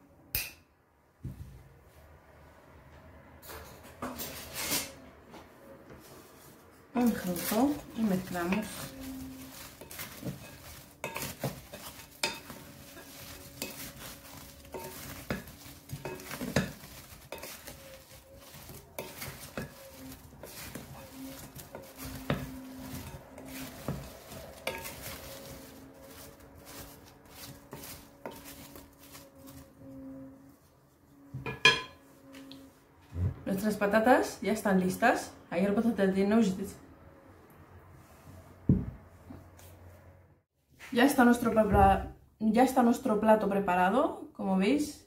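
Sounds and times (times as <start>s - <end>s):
potatoes tumbling: 7.0s - 29.8s
wooden spatula scraping glass bowl: 7.0s - 30.4s.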